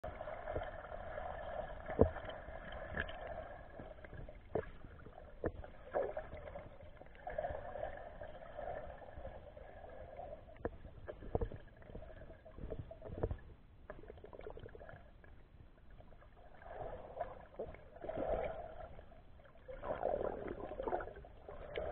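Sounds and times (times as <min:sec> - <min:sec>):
underwater clicks and knocks: 0:01.9 - 0:03.2, 0:03.8 - 0:06.6, 0:10.5 - 0:15.4.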